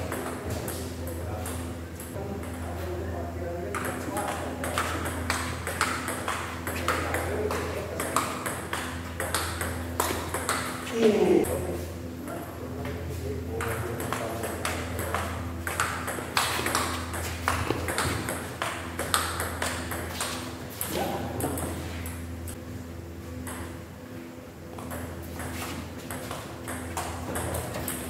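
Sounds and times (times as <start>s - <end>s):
table tennis ball hits: 0.0s - 0.7s, 3.7s - 10.9s, 13.6s - 21.8s, 24.8s - 28.0s
steady low hum: 0.0s - 28.0s.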